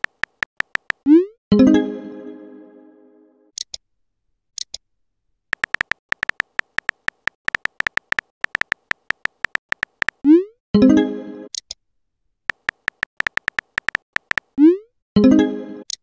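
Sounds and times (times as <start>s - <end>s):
phone keyboard typing clicks: 0.0s - 1.1s, 5.6s - 10.3s, 12.5s - 14.6s.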